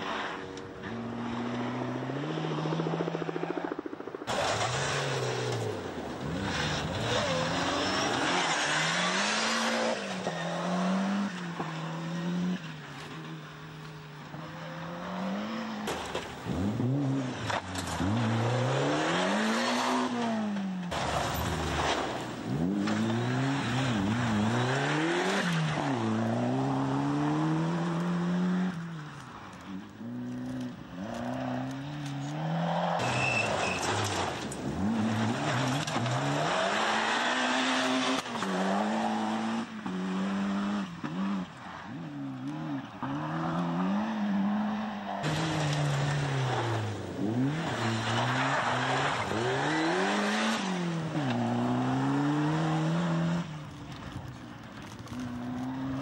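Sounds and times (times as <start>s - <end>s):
rally car engines revving: 0.0s - 56.0s
cars rushing past: 29.7s - 56.0s.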